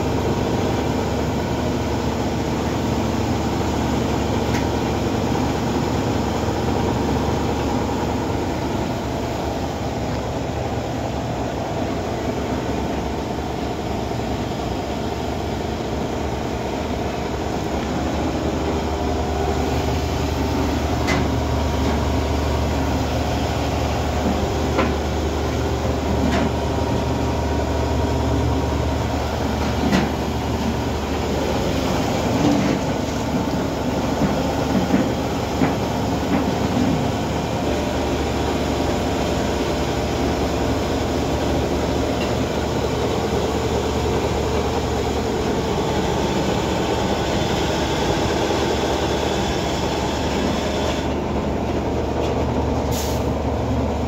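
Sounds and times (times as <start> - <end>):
flour mill grinding drone: 43.1 - 51.3.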